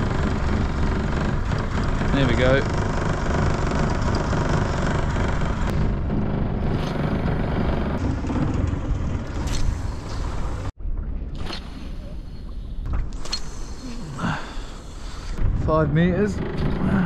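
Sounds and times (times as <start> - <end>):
outboard motor running: 0.0 - 10.7, 16.2 - 17.0.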